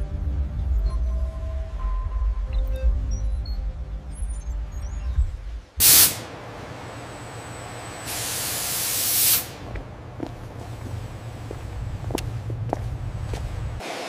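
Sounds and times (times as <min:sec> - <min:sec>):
pressurised air hissing: 0:05.8 - 0:09.8.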